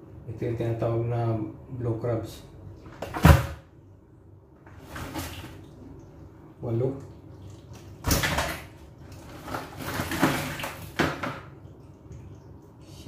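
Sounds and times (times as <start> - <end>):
crabs scraping plastic bucket: 9.2 - 11.0.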